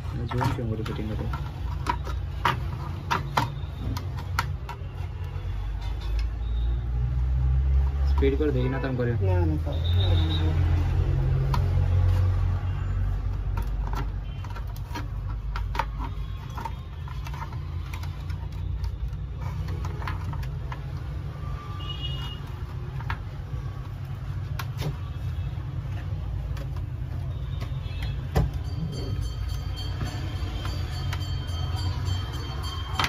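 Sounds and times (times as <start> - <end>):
plastic parts clicking and tapping: 0.0 - 6.4, 13.2 - 28.6.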